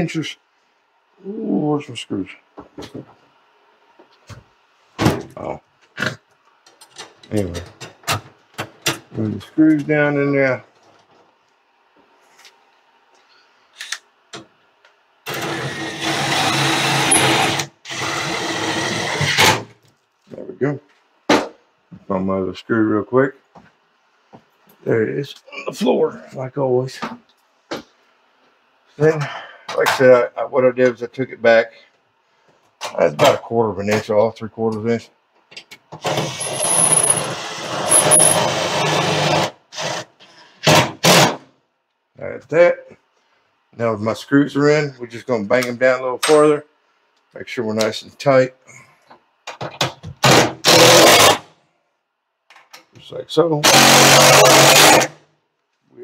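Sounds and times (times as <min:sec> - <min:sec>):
cordless drill driving screws: 0:15.3 - 0:19.4, 0:36.0 - 0:40.1, 0:50.6 - 0:51.4, 0:53.6 - 0:55.1
cordless impact driver running: 0:36.1 - 0:39.5, 0:53.6 - 0:55.1.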